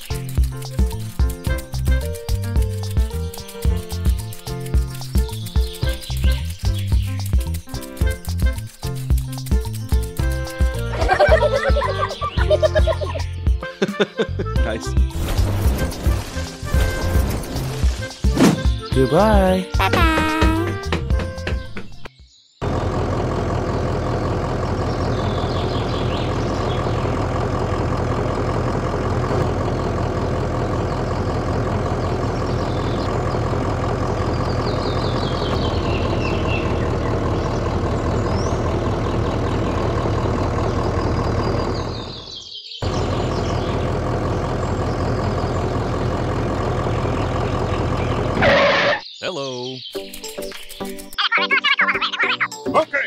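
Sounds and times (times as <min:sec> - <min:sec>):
heavy engine idling: 0:22.6 - 0:49.0.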